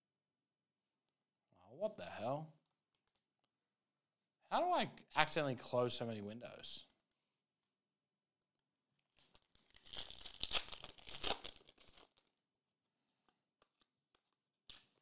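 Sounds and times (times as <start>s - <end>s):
foil wrapper tearing and crinkling: 9.2s - 12.4s.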